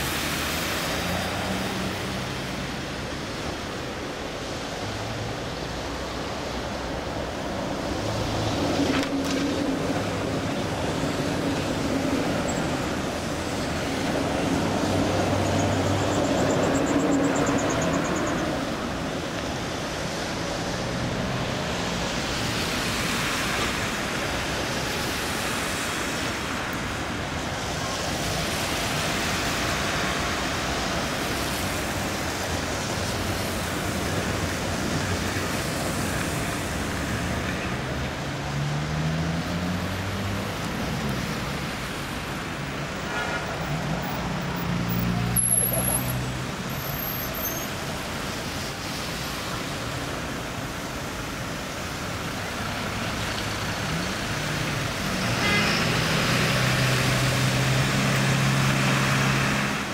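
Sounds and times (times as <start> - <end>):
tram wheels rumbling on rails: 7.5 - 18.9.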